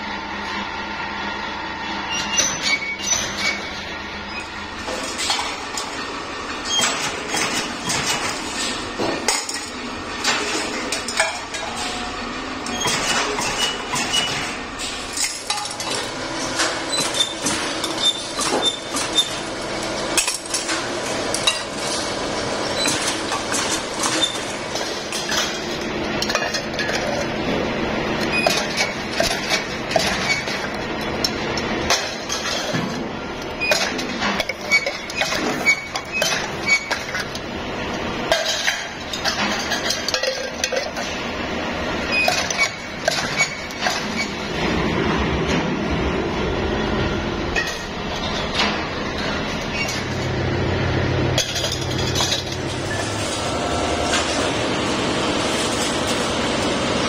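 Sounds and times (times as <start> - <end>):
sheet metal parts clinking: 51.4 - 53.2.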